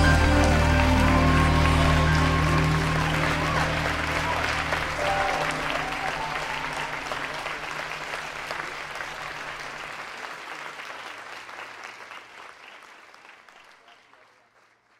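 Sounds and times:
music held notes: 0.0 - 8.8
audience applauding: 0.0 - 14.9.

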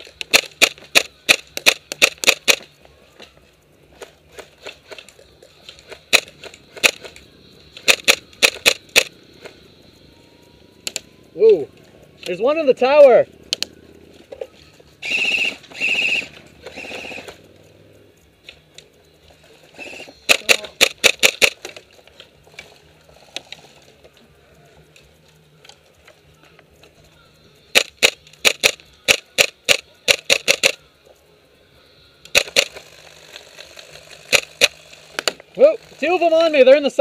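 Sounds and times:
airsoft guns firing: 0.1 - 2.7, 5.7 - 9.6, 15.0 - 17.5, 19.8 - 21.9, 27.7 - 30.8, 32.3 - 32.9, 34.2 - 35.5.

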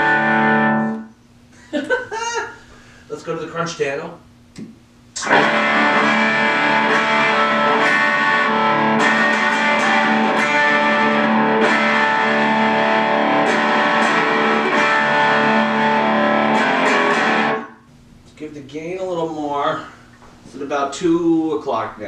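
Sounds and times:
distorted electric guitar chords: 0.0 - 1.1, 5.2 - 17.8.

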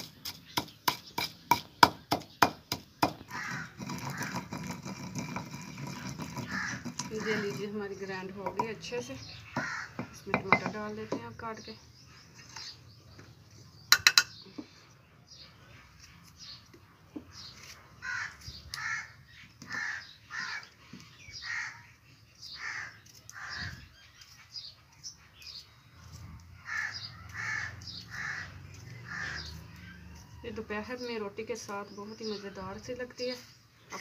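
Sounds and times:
crows cawing: 3.2 - 4.5, 6.4 - 7.6, 9.5 - 10.2, 18.0 - 20.8, 21.4 - 23.9, 26.6 - 30.0.

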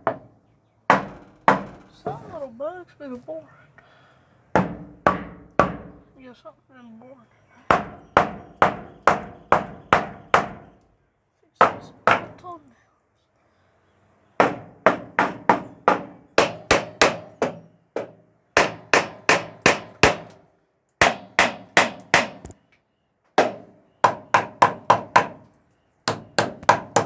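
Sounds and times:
hammer driving nails into wood: 0.9 - 1.9, 4.5 - 6.0, 7.7 - 10.6, 14.4 - 20.4, 21.0 - 22.6, 23.4 - 27.0.

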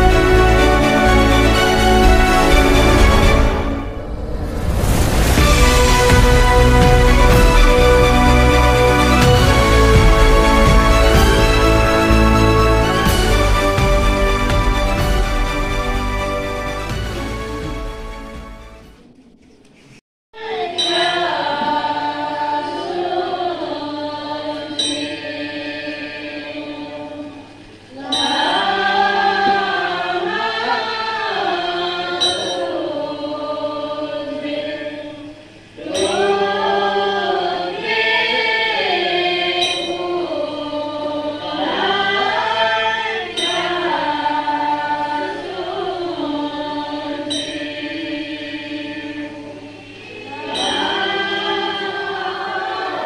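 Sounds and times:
group chanting a prayer: 20.4 - 53.0.

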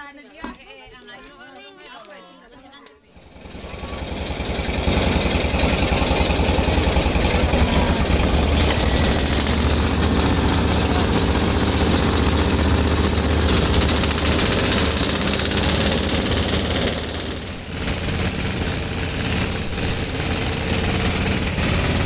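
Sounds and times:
boat engine chugging: 3.2 - 22.0.

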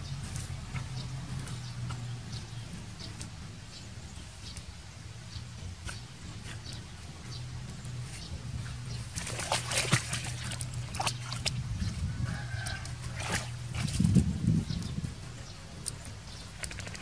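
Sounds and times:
dog splashing in water: 5.3 - 14.4, 16.2 - 17.0.

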